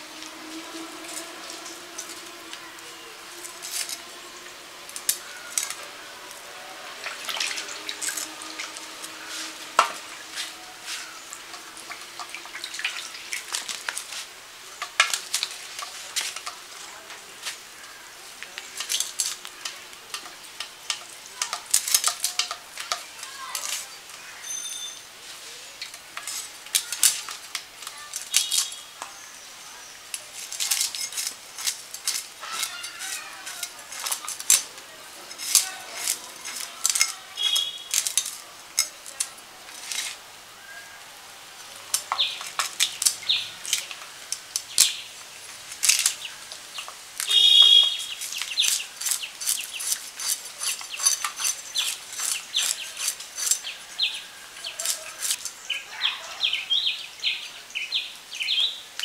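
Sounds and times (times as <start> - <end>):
fish scraping against blade: 48.1 - 53.8.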